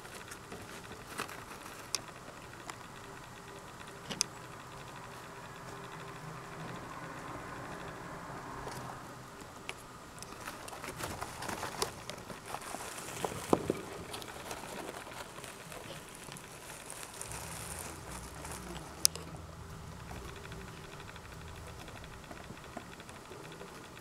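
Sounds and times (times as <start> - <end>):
mice rustling in bedding: 0.0 - 4.2, 9.8 - 24.0
small scratchy clicks: 0.0 - 24.0.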